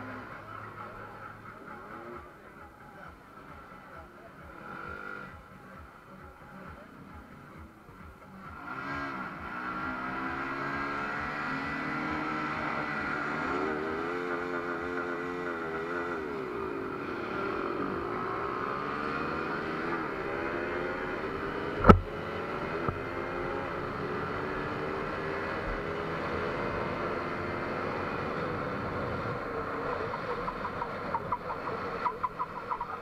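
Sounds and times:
motorcycle engine accelerating: 0:00.0 - 0:33.0
exhaust cracks: 0:21.8 - 0:22.1
sharp thump: 0:21.8 - 0:22.1.

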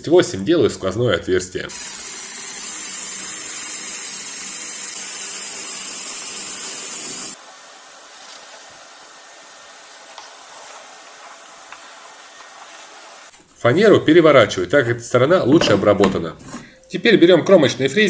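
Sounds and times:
cordless drill boring wood: 0:01.7 - 0:13.3
shop vacuum hissing: 0:01.7 - 0:13.3.

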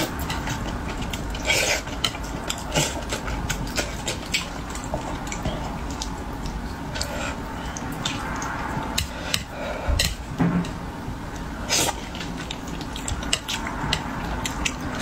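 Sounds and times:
wet chewing and mouth smacks: 0:00.2 - 0:09.0, 0:11.9 - 0:15.0
chopsticks tapping plate: 0:08.0 - 0:10.8, 0:12.1 - 0:15.0.

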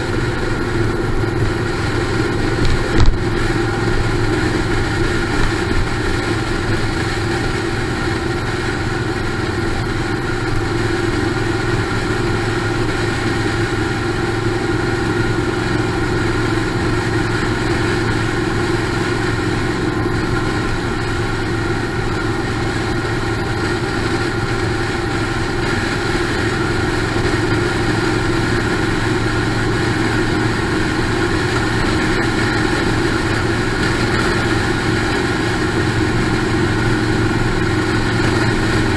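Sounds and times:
motorcycle engines running: 0:00.0 - 0:38.9
wind and road noise: 0:00.0 - 0:38.9.

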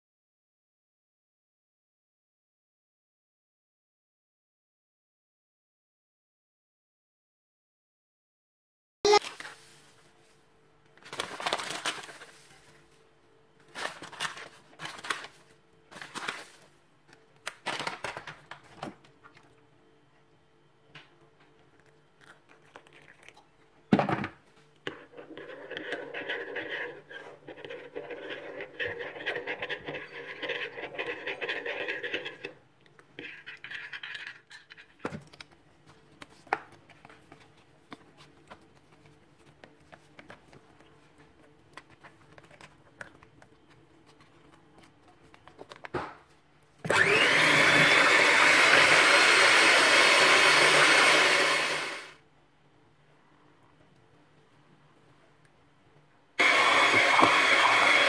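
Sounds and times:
electric hand mixer whipping cream: 0:46.9 - 0:52.2, 0:56.4 - 0:58.0.

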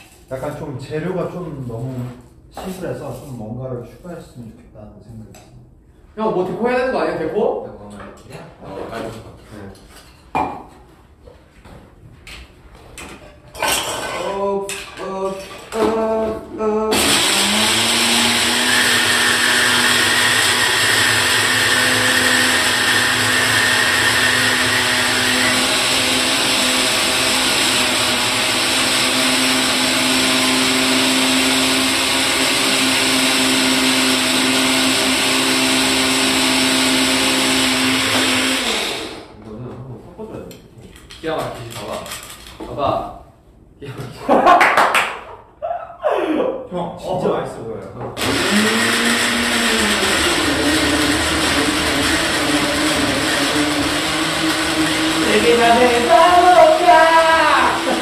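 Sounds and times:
blender whirring: 0:16.9 - 0:39.4, 0:48.2 - 0:58.0.

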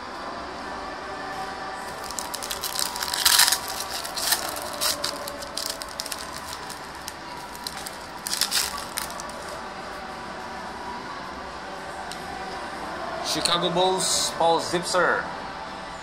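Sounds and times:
foil wrapper crinkling and tearing: 0:01.9 - 0:09.6.

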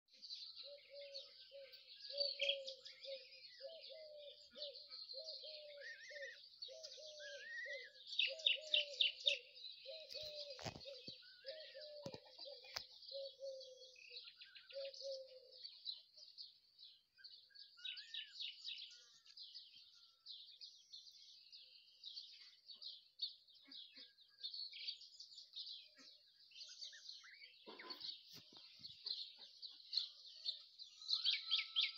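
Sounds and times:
lower bird call: 0:00.6 - 0:15.6, 0:30.9 - 0:31.9.

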